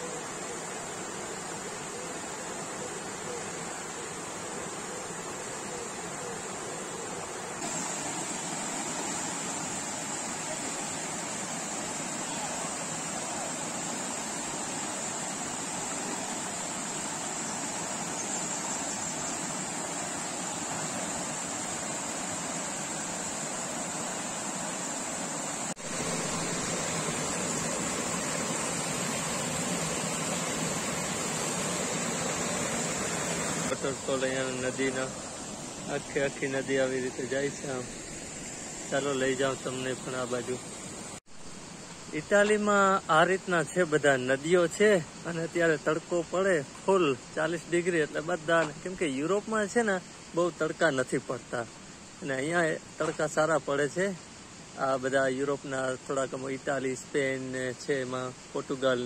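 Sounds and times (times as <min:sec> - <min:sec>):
river water rushing over rocks: 0:00.0 - 0:41.2.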